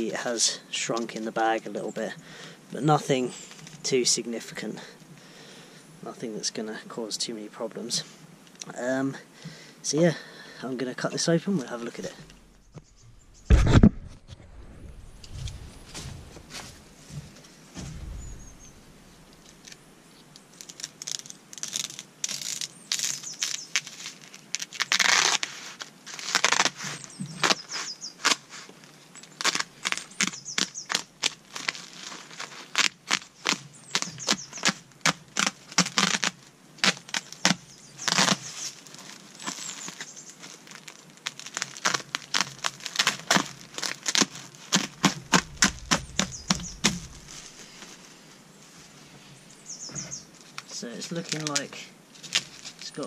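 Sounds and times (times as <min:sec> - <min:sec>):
plastic fabric crackling: 0:11.8 - 0:19.8, 0:20.6 - 0:28.7, 0:29.3 - 0:48.1
fabric tearing: 0:20.8 - 0:26.8, 0:29.4 - 0:47.6.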